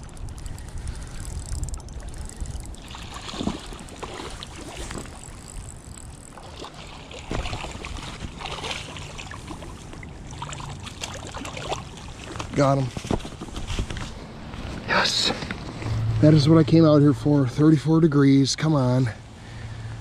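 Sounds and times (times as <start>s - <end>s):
wind buffeting the microphone: 0.0s - 6.3s
fish splashing at the surface: 2.8s - 12.5s.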